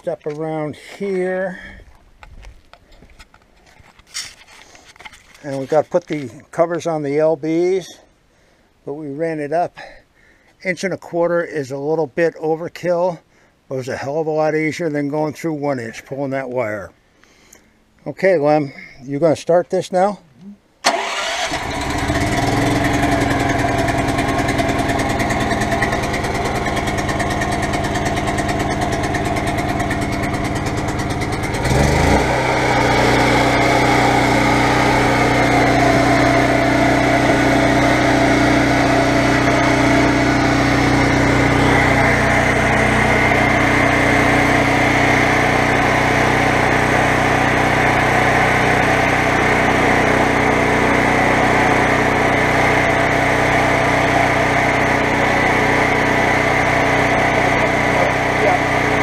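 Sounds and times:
generator engine running: 0:20.9 - 0:59.0.

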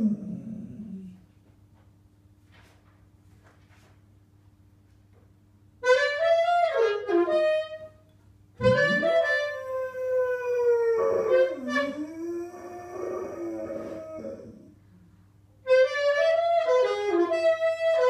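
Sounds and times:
dog howling: 0:00.0 - 0:01.2, 0:08.8 - 0:14.8
saxophone: 0:05.8 - 0:08.0, 0:08.6 - 0:10.4, 0:11.0 - 0:12.4, 0:15.6 - 0:18.0.

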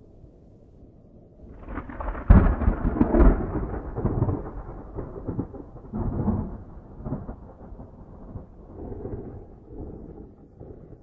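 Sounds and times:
thunder clap and rumble: 0:01.5 - 0:11.0.

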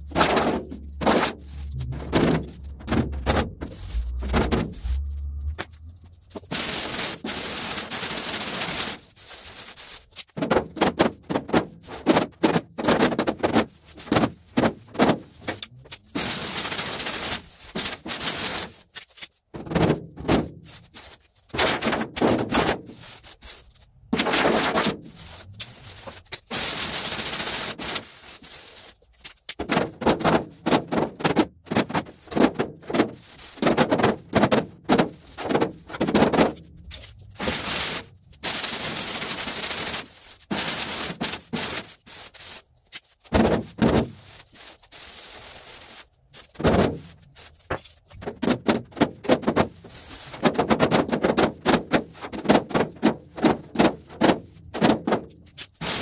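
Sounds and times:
steady rasping noise: 0:00.0 - 0:10.3, 0:20.3 - 0:28.9, 0:29.9 - 0:56.0.

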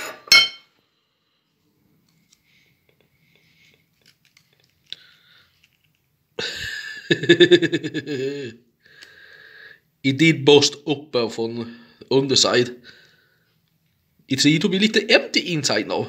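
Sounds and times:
fork clinking on ceramic plate: 0:00.0 - 0:00.7
person speaking: 0:14.3 - 0:16.0.

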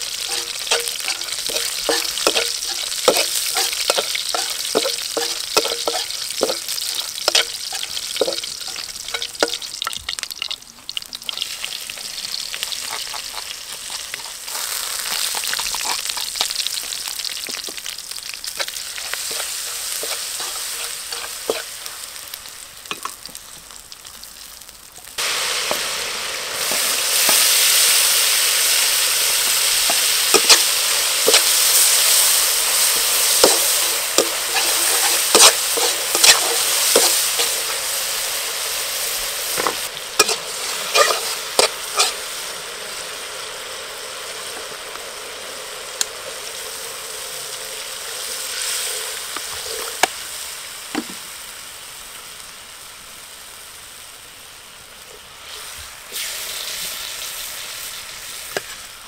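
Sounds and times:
spatula scraping a wok: 0:00.0 - 0:09.7, 0:12.6 - 0:22.1, 0:26.6 - 0:42.4, 0:48.2 - 0:50.1, 0:58.4 - 0:58.9
oil sizzling in a wok: 0:00.0 - 0:59.0.

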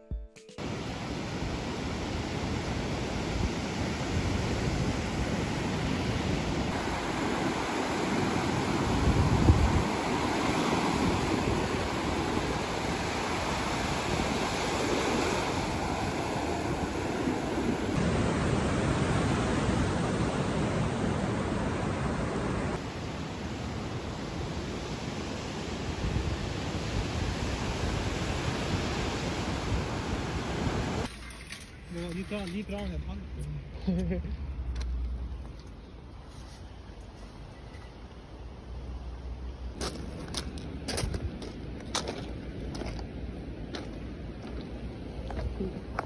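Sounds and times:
surf breaking on beach: 0:00.6 - 0:31.1
wind buffeting microphone: 0:01.2 - 0:22.8.

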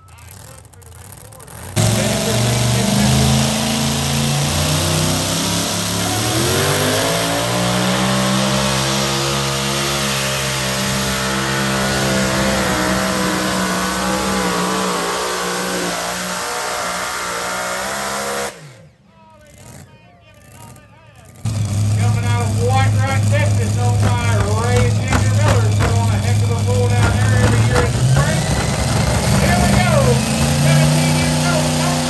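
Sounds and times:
tractor engine at full throttle: 0:00.0 - 0:32.0.

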